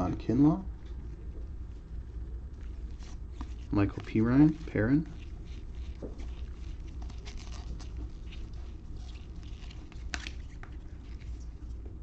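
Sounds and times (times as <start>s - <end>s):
low steady hum: 0.0s - 12.0s
cards rustling and clicking: 2.6s - 11.8s.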